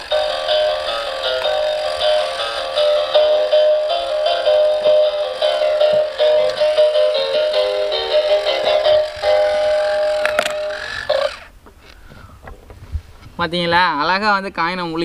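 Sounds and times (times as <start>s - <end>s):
bright melody of short notes: 0.0s - 11.2s.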